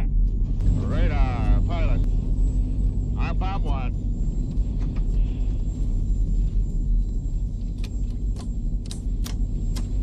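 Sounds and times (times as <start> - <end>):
aircraft engines droning: 0.0 - 10.0.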